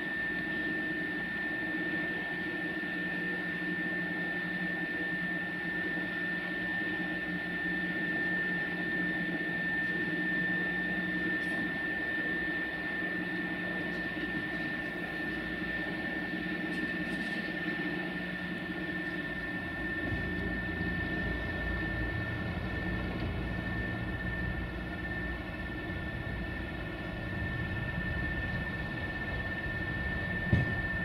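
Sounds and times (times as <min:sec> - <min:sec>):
motor and gear whine: 0:00.0 - 0:31.0
low hum: 0:13.3 - 0:31.0.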